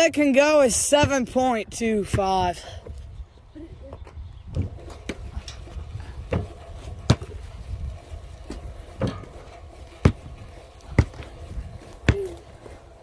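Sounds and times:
steady low rumble: 0:00.9 - 0:13.0
sharp thuds: 0:06.3 - 0:07.4.

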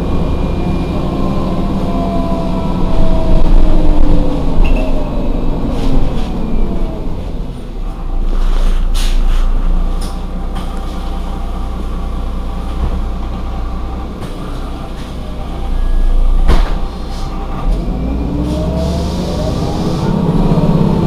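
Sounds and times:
rising whine: 0:00.0 - 0:08.4, 0:17.2 - 0:21.0
bus engine idling: 0:00.0 - 0:21.0.

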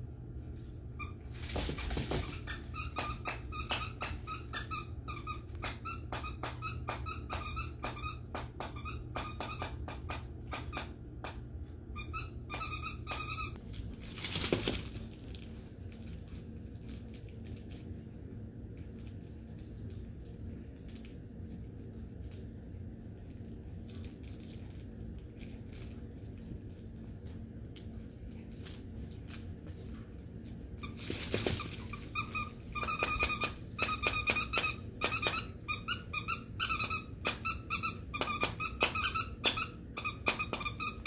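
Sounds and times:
dog toy squeaking: 0:02.0 - 0:11.4, 0:12.0 - 0:13.6, 0:30.8 - 0:41.0.

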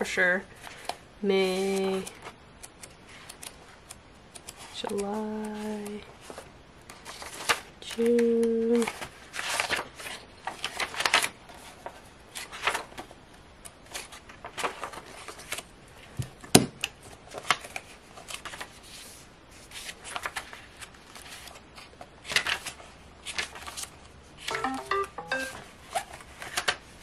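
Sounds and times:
paper pages rustling: 0:04.4 - 0:13.2, 0:13.8 - 0:16.4, 0:17.0 - 0:24.5, 0:25.7 - 0:27.0.

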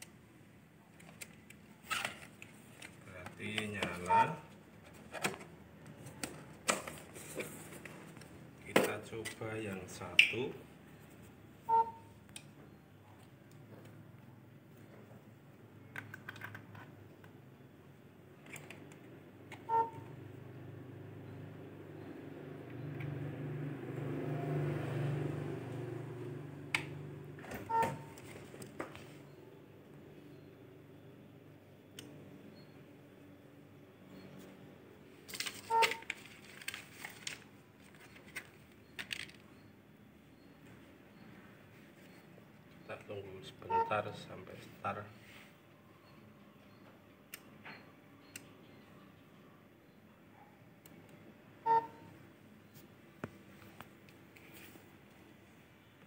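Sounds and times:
paper and cardboard crinkling: 0:35.3 - 0:38.6.

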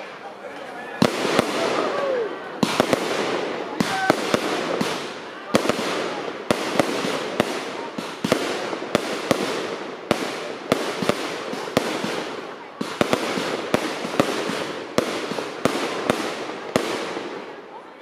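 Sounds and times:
fireworks crackling: 0:00.0 - 0:18.0
firework bangs: 0:00.8 - 0:17.9.

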